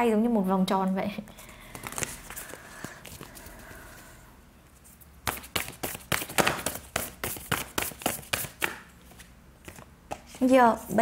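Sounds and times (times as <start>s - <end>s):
cards shuffling: 1.6s - 3.7s, 5.2s - 10.4s.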